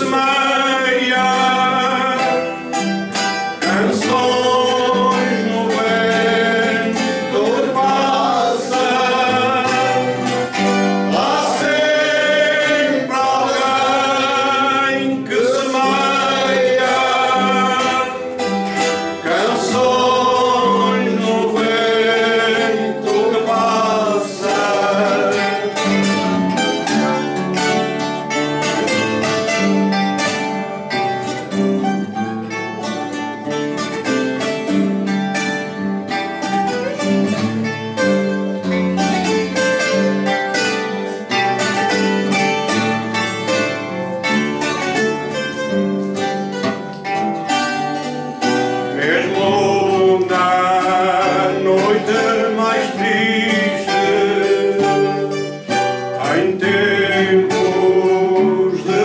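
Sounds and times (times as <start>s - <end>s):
man singing with vibrato: 0.0s - 27.4s, 48.3s - 59.0s
guitars playing: 0.0s - 59.0s.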